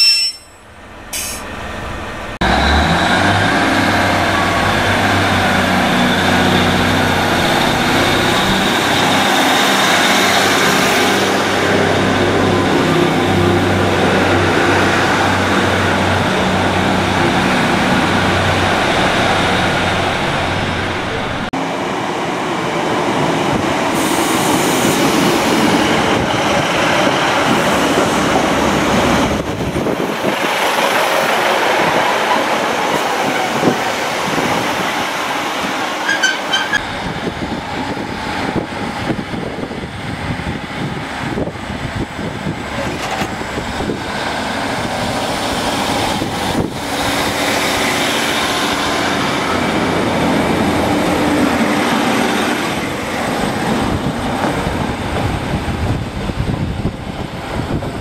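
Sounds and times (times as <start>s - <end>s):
high beeps: 0.0s - 0.6s
diesel train engine rumble: 0.0s - 58.0s
train wheels on rails: 0.0s - 58.0s.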